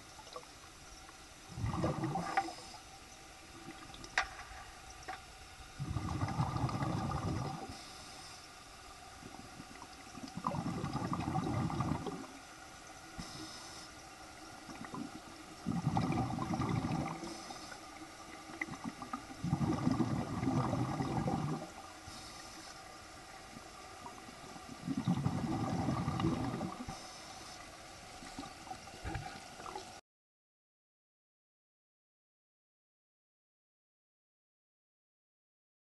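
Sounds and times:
underwater bubbling exhalation: 0:01.5 - 0:02.7, 0:05.8 - 0:07.9, 0:09.2 - 0:12.4, 0:14.7 - 0:17.6, 0:18.4 - 0:21.8, 0:24.0 - 0:27.0
faint hiss of inhalation: 0:02.3 - 0:02.9, 0:07.6 - 0:08.7, 0:13.2 - 0:14.1, 0:17.1 - 0:18.0, 0:22.0 - 0:23.2, 0:26.8 - 0:28.6.

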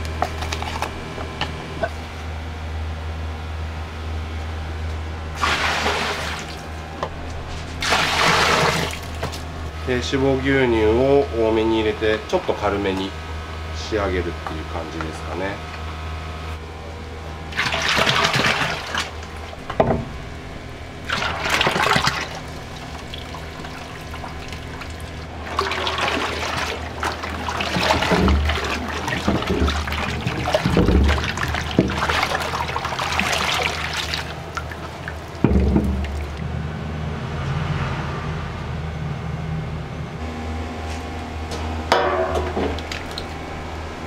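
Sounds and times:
milk pouring and splashing: 0:05.4 - 0:06.7, 0:07.8 - 0:09.4, 0:17.6 - 0:19.6, 0:21.0 - 0:36.4, 0:42.7 - 0:43.4
low hum: 0:19.1 - 0:32.8, 0:33.6 - 0:44.0.

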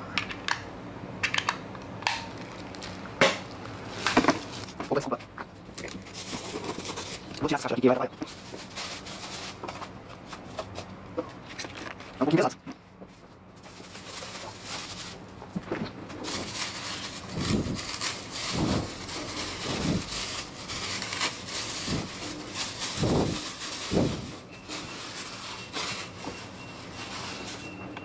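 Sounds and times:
plastic bag crinkling: 0:02.2 - 0:05.0, 0:05.8 - 0:09.9, 0:13.6 - 0:15.4, 0:16.1 - 0:27.9.

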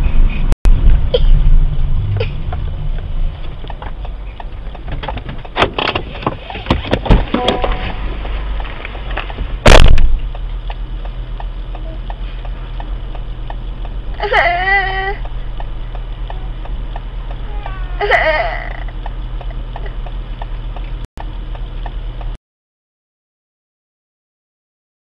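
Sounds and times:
steady low hum: 0:00.0 - 0:22.4
car door opening: 0:04.9 - 0:08.2.

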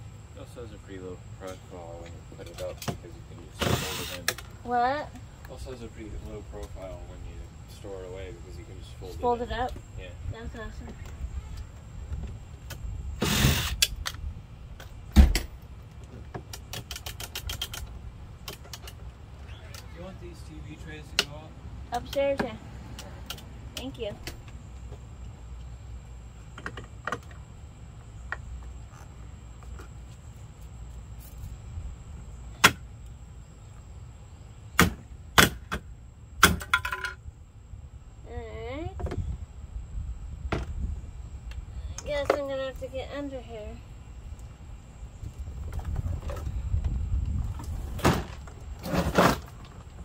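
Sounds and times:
scraping rustle: 0:47.4 - 0:50.0.

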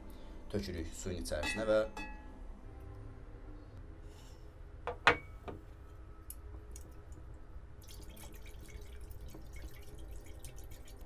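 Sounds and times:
light glass clink: 0:01.4 - 0:02.3
glass bowl knocking on wooden table: 0:04.9 - 0:05.6.

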